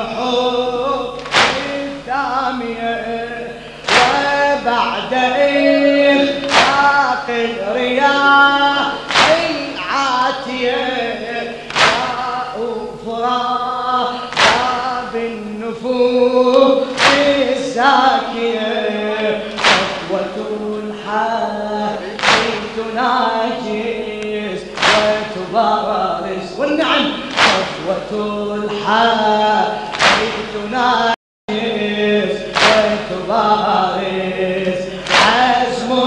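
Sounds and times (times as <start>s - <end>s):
men chanting a lament: 0.0s - 36.0s
crowd striking chests: 1.2s - 2.0s, 3.6s - 4.6s, 6.2s - 7.1s, 9.0s - 9.8s, 11.6s - 12.4s, 14.3s - 15.0s, 16.8s - 17.5s, 19.4s - 20.2s, 22.2s - 22.8s, 24.8s - 25.4s, 27.2s - 27.9s, 29.9s - 30.6s, 32.5s - 33.0s, 34.9s - 35.7s.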